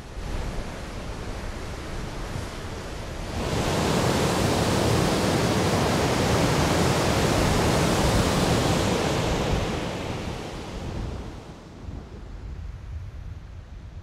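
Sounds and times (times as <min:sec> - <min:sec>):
waterfall rushing: 0:03.3 - 0:11.6.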